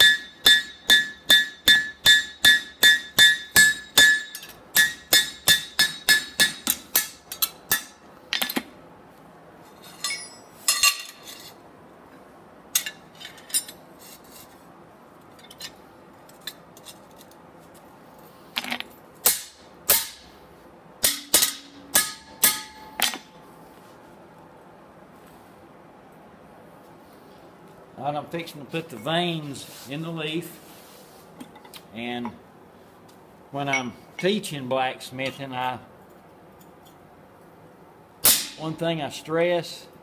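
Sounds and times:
hammer ringing on anvil: 0.0s - 8.0s, 21.0s - 23.2s
metal clinks and knocks: 9.7s - 11.6s.

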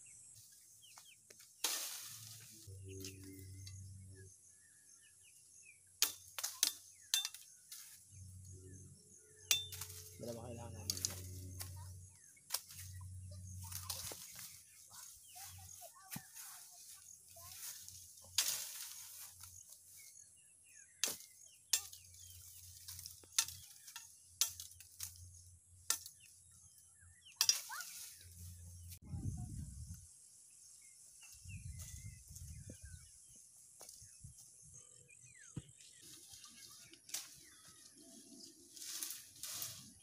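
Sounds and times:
rustle of leaves: 1.4s - 3.4s, 12.5s - 20.2s, 27.4s - 29.0s, 36.0s - 40.0s
knife chopping bamboo branches: 6.0s - 7.8s, 21.0s - 25.2s, 25.8s - 26.3s.

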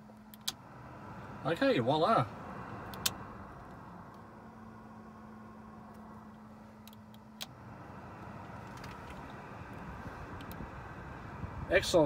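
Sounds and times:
steady low hum: 0.0s - 12.0s
sharp clicks: 2.9s - 3.2s
air rushing from vents: 7.5s - 12.0s.

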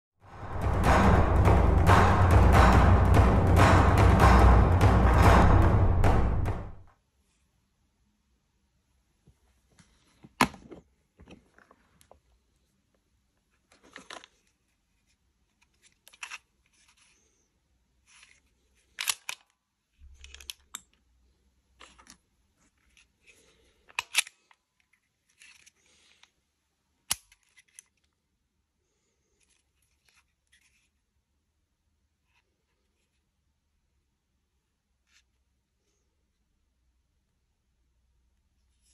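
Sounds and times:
plastic and metal clicks and snaps: 18.8s - 21.0s, 23.8s - 25.8s, 27.0s - 28.2s.

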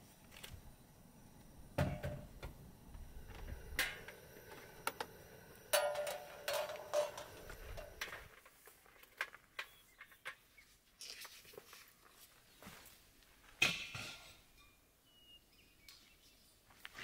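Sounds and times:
camp gear clicks and knocks: 5.8s - 10.4s.

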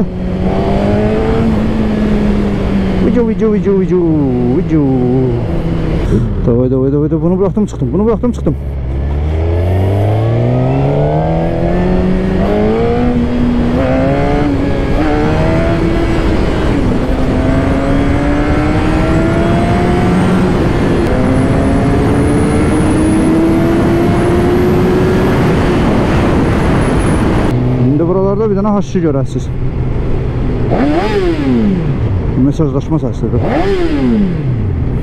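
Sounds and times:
motorcycle engine accelerating: 0.0s - 28.7s, 29.5s - 35.0s
wind rush: 9.3s - 27.9s.

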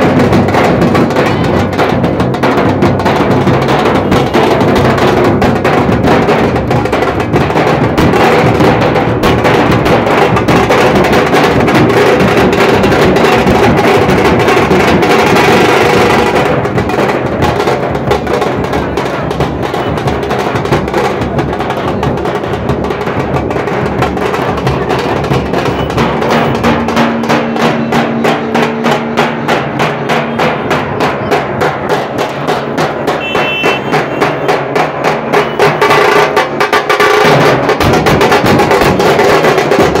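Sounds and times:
dhol drums beaten fast: 0.0s - 40.0s.

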